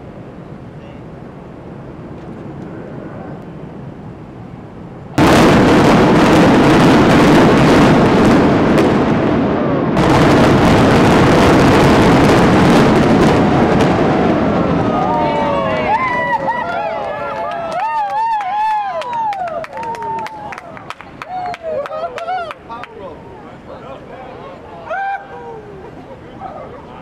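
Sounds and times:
building collapsing: 5.2s - 17.0s
demolition charges exploding: 5.2s - 17.0s.

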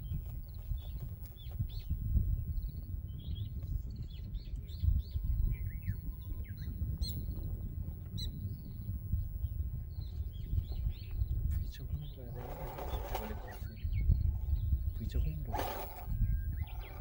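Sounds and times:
constant low rumble: 0.0s - 17.0s
small birds chirping: 0.0s - 17.0s.

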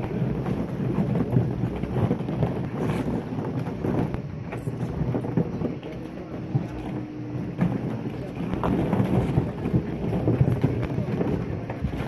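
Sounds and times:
plastic balls rattling and rustling: 0.0s - 12.0s.

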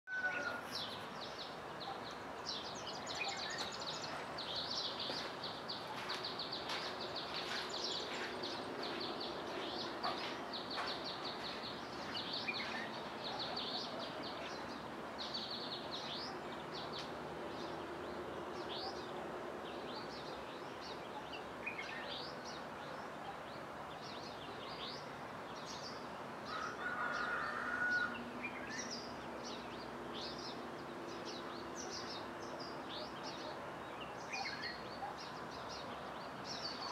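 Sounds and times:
birds chirping and trilling: 0.1s - 36.9s.

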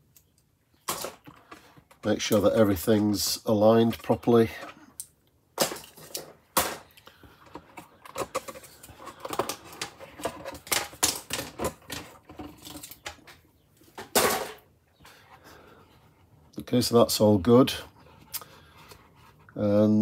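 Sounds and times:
plastic clamps clicking and clattering: 4.5s - 14.6s.

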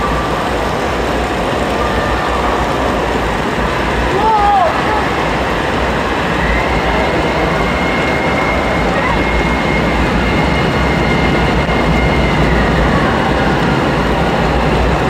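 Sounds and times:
faint high tone: 0.0s - 3.2s
rushing and splashing water: 0.0s - 15.0s.

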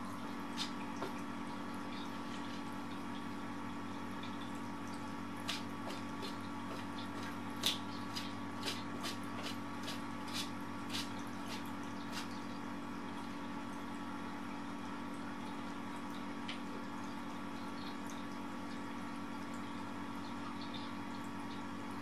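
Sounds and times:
steady hum: 0.0s - 13.4s.

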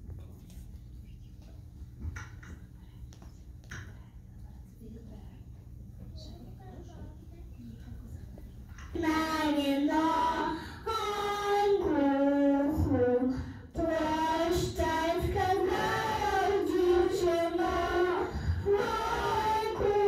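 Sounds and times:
children singing into microphones: 8.9s - 20.0s.

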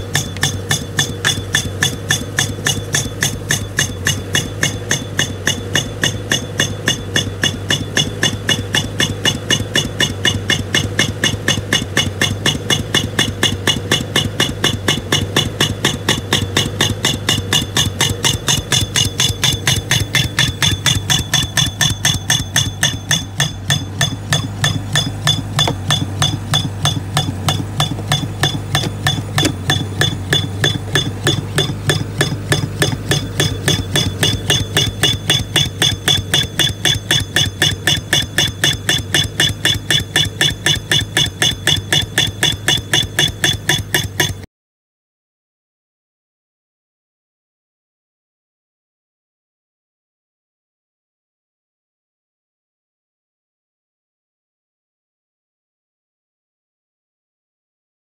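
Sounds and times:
pneumatic tool hammering: 0.0s - 44.5s.

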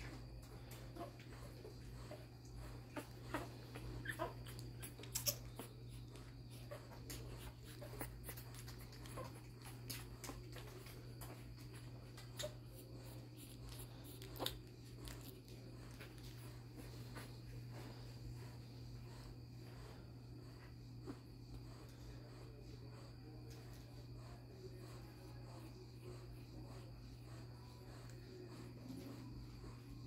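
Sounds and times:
steady low hum: 0.0s - 30.0s
puppies squeaking and whimpering: 0.7s - 10.9s.

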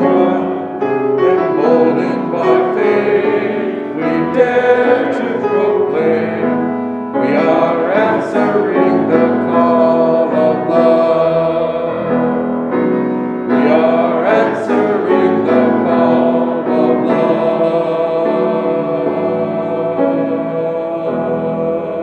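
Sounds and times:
congregation singing a hymn: 0.0s - 22.0s
grand piano: 0.0s - 22.0s.

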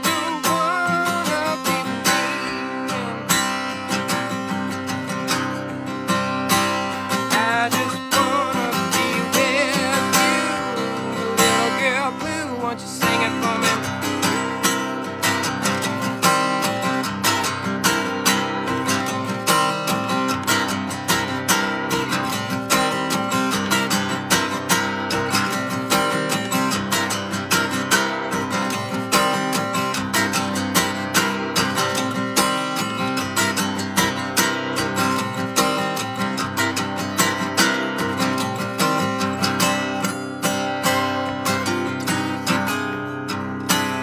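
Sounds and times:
acoustic guitar strumming: 0.0s - 44.0s.

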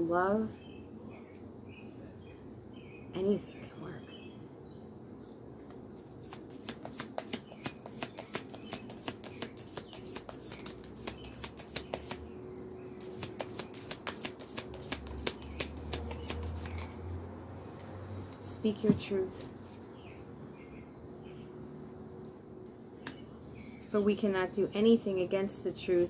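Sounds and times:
cards being shuffled: 5.6s - 16.9s.

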